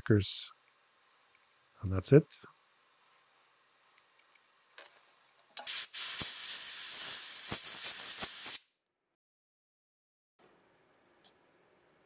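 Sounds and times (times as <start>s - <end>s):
compressed air hissing from nozzle: 5.6s - 8.7s.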